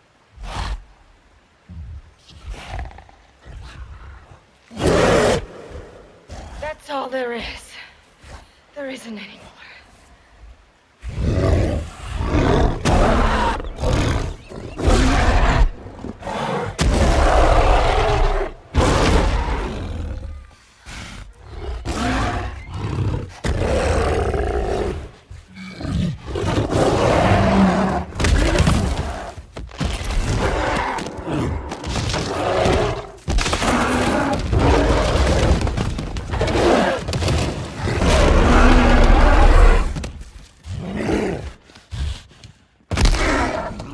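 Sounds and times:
gorilla snarling and roaring: 11.0s - 40.1s, 42.9s - 43.9s.

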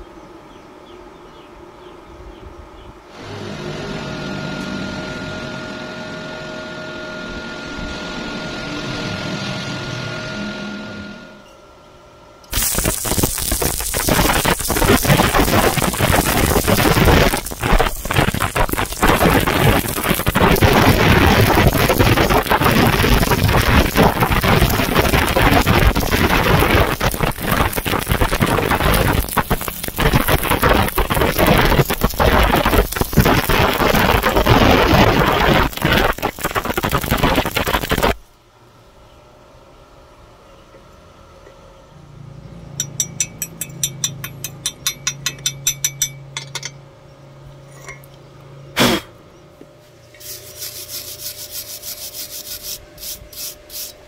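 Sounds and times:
welding arc crackling: 12.5s - 38.3s.

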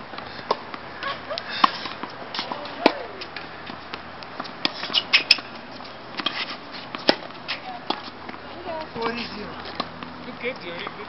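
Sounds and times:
tennis racket hitting ball: 1.5s - 8.9s.

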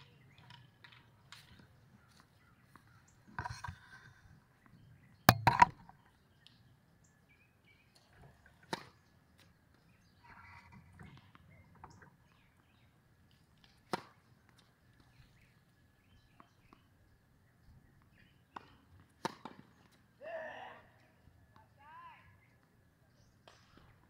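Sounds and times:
faint outdoor background noise: 0.0s - 24.0s
racket hitting tennis ball: 5.3s - 5.8s.

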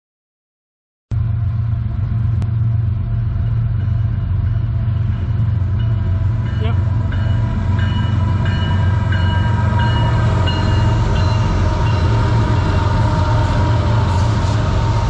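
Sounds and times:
locomotive engine rumble: 1.1s - 15.0s
locomotive bell dinging: 3.0s - 14.4s.

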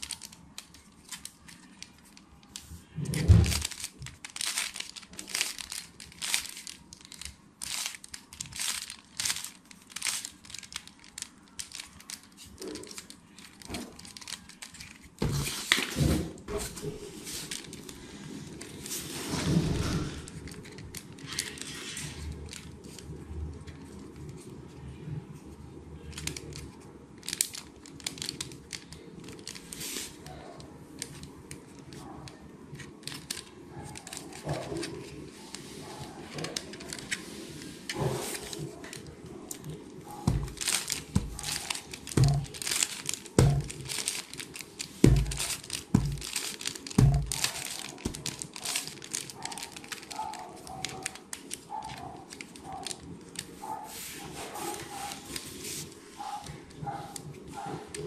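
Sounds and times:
puzzle cube clicking: 3.5s - 15.2s.

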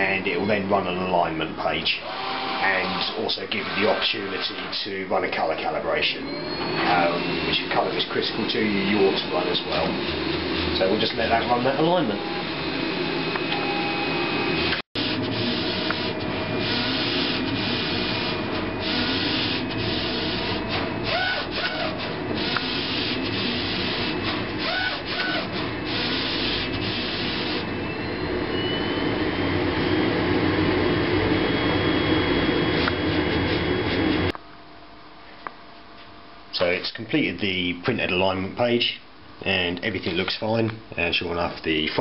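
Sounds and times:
printer carriage mechanical hissing: 1.8s - 5.5s, 6.4s - 28.4s.

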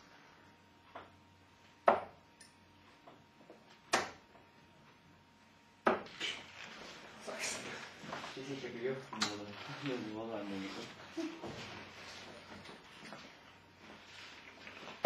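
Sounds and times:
darts thudding into dartboard: 3.9s - 4.2s, 5.8s - 6.1s.

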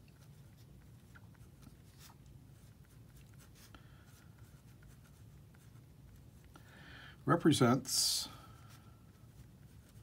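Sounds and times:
pen scratching on paper: 2.0s - 6.5s.

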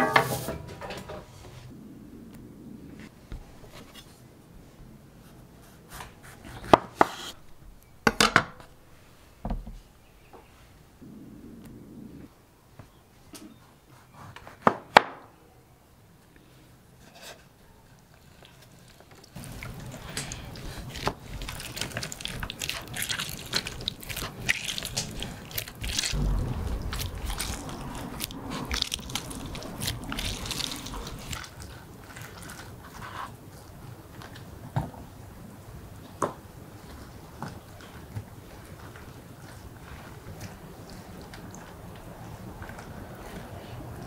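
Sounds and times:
citrus juicer squishing and crackling: 17.9s - 34.5s.

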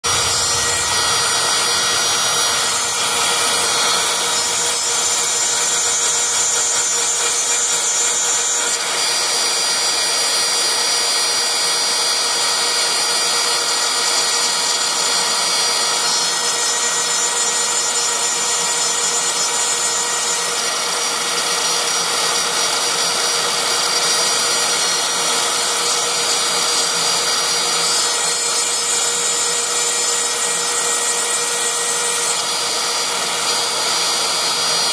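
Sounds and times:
hiss of cutting metal: 0.0s - 8.7s
router spindle whine: 0.0s - 34.9s.

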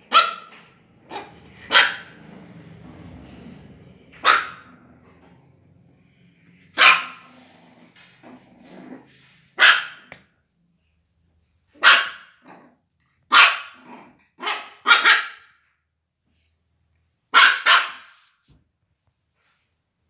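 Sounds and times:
puppy barking: 0.0s - 2.2s, 4.0s - 4.9s, 6.7s - 7.3s, 9.6s - 10.2s, 11.8s - 12.7s, 13.3s - 15.6s, 17.3s - 18.2s.

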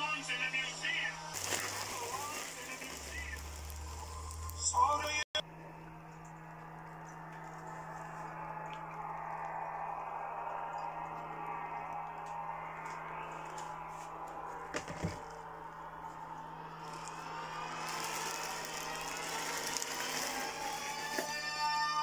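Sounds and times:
steady music-like tones: 0.0s - 22.0s
plastic packaging rustling: 1.4s - 4.6s, 16.8s - 21.7s.

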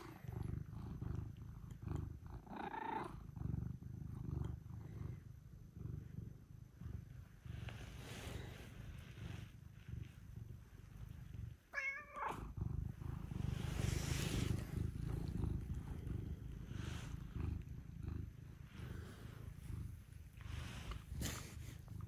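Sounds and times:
cat purring: 0.0s - 22.0s
cat meow: 11.7s - 12.4s.

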